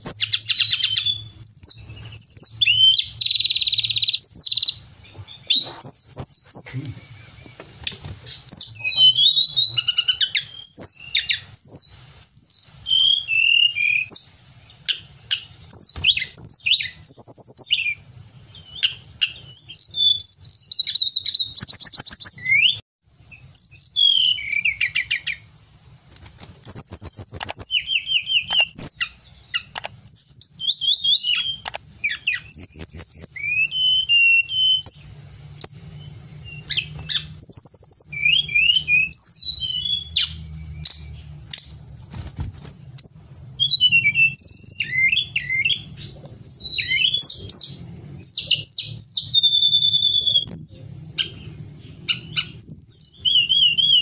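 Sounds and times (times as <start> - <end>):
bird singing with trills and whistles: 0.0 - 41.8, 42.6 - 54.0.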